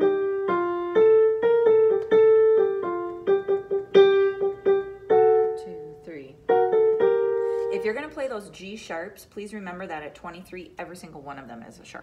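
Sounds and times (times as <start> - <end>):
piano melody: 0.0 - 8.5.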